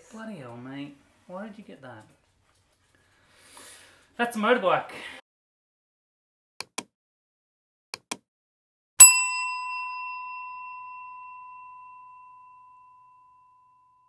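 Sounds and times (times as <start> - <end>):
bell-like ding: 9.0 - 14.0.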